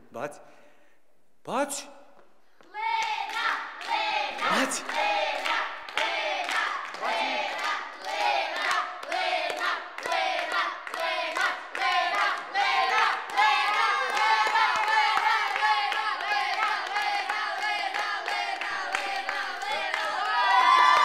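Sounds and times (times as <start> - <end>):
children shouting and cheering: 12.4 - 17.4, 18.6 - 21.0.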